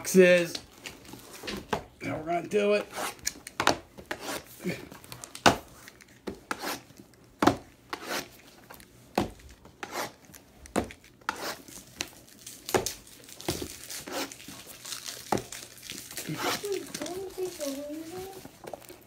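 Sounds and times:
plastic wrapping crinkling: 11.0s - 19.0s.

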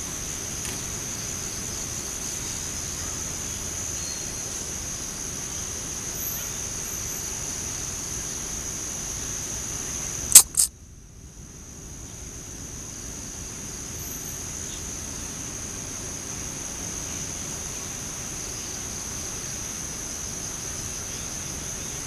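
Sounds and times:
high-pitched insect drone: 10.4s - 10.7s
sharp clicks: 10.4s - 10.7s.

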